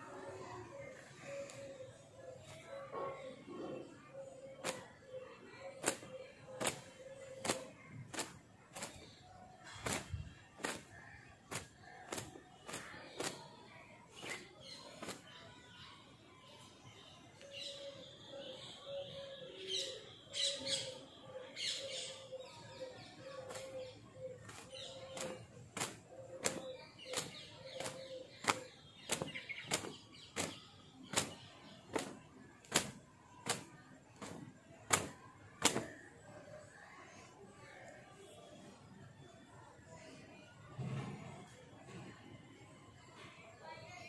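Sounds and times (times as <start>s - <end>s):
towel slapping wet hair: 5.8s - 9.0s, 9.8s - 10.9s, 24.5s - 36.0s.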